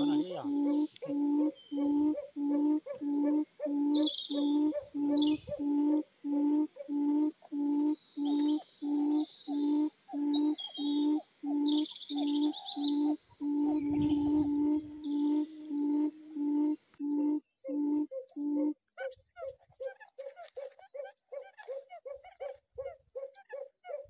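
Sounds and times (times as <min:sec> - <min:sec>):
quail call low hooting note: 0:00.0 - 0:18.8
small birds chirping: 0:00.0 - 0:24.0.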